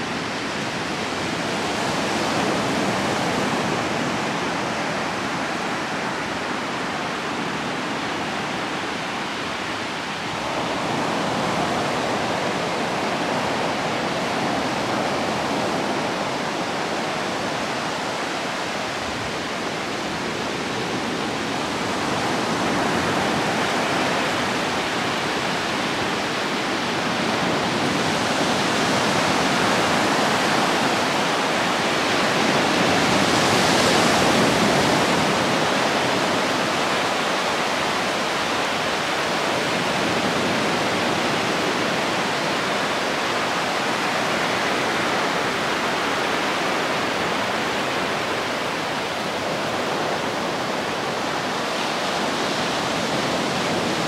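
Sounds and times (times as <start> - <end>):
sea waves washing up beach: 0.0 - 54.0.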